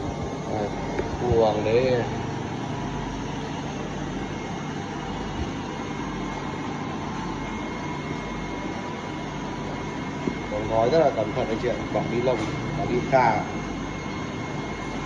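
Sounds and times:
faint high whine: 0:00.0 - 0:15.0
mechanical hum and hiss: 0:00.0 - 0:15.0.

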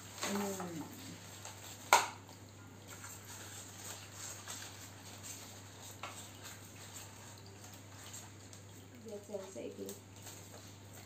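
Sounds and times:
ribbon rustling against paper: 0:02.9 - 0:11.0.

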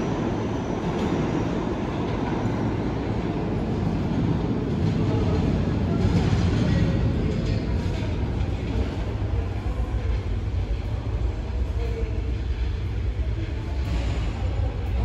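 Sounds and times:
subway train rumbling: 0:00.0 - 0:15.0.

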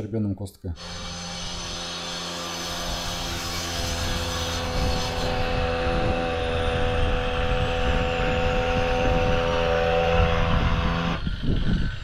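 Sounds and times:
machine engine droning: 0:00.8 - 0:12.0.

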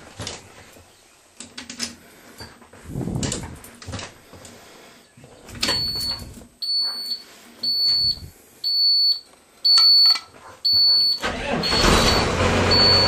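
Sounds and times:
warning buzzer beeping: 0:10.7 - 0:13.0.

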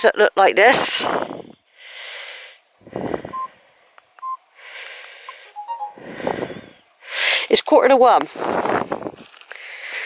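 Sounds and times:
person breathing hard: 0:01.2 - 0:03.9, 0:04.6 - 0:07.5, 0:09.5 - 0:10.0
phone beeps: 0:03.3 - 0:03.5, 0:04.2 - 0:04.4, 0:05.4 - 0:06.0.

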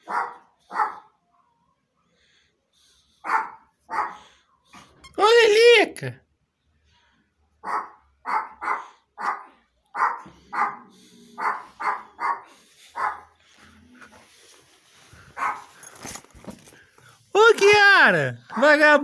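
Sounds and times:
dog barking: 0:00.0 - 0:01.8, 0:03.2 - 0:04.4, 0:07.6 - 0:13.4, 0:15.4 - 0:15.8.

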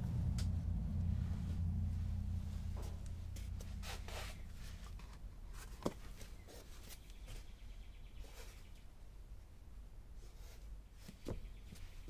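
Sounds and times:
low steady hum: 0:00.0 - 0:12.0
hands brushing on cloth: 0:02.9 - 0:07.2.

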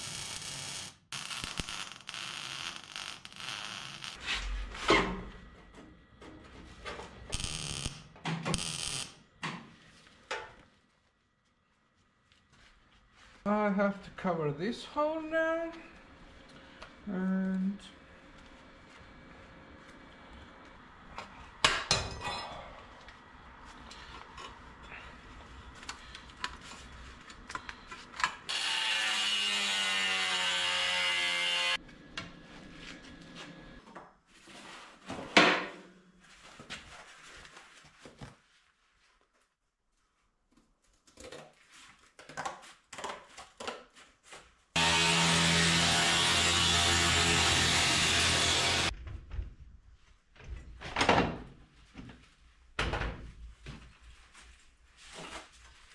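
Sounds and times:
power tool running: 0:44.8 - 0:48.9.

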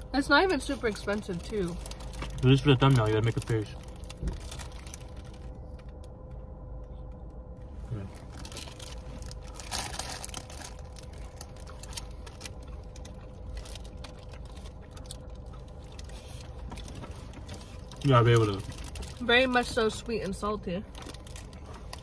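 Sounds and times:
car cabin hum: 0:00.0 - 0:22.0
plastic bags crinkling: 0:00.8 - 0:05.8, 0:08.1 - 0:19.7, 0:20.9 - 0:22.0
people chewing: 0:07.9 - 0:19.2.

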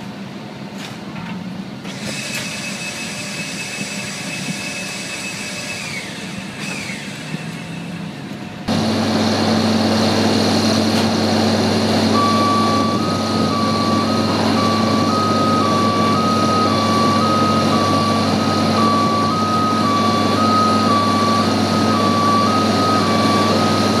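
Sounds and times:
machine drone: 0:00.0 - 0:24.0
two-tone warning beep: 0:12.1 - 0:24.0.

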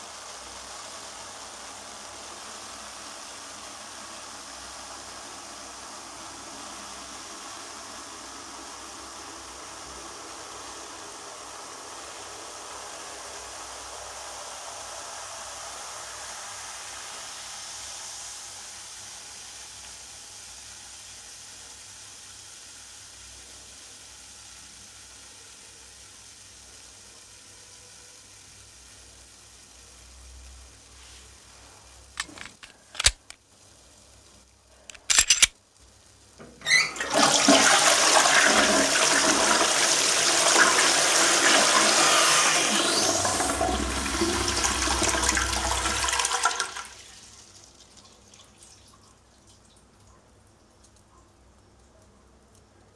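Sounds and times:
sharp clicks and knocks: 0:32.2 - 0:33.4, 0:34.9 - 0:35.5
cola foam fizzing: 0:36.1 - 0:52.9.

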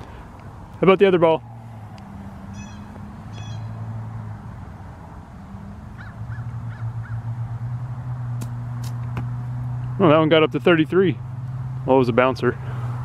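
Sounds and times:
bird calling: 0:02.0 - 0:03.8, 0:05.9 - 0:07.3.

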